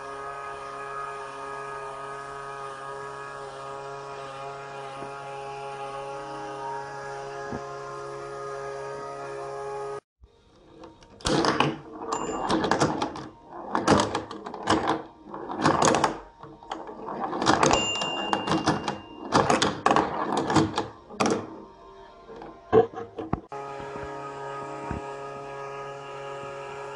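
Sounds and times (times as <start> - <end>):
pinball flippers clacking: 10.7 - 21.7, 22.3 - 23.5
pinball ball rattling: 10.7 - 23.5.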